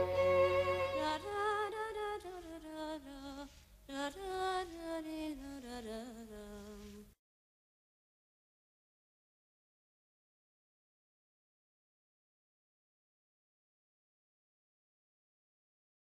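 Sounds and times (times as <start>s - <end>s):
slow melody with vibrato: 0.0s - 1.6s.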